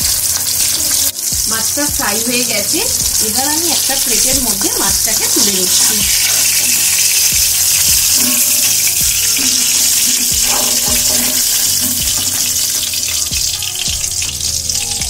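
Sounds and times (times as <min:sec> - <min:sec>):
background music with low beat: 0:00.0 - 0:15.0
oil sizzling in a pan: 0:00.0 - 0:15.0.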